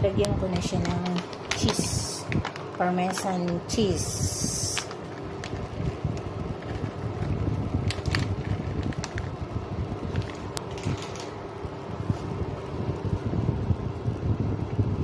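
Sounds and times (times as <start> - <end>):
fan running with low hum: 0.0 - 15.0
packet shaken with light clicks: 0.5 - 3.7, 4.5 - 9.4, 10.1 - 11.4.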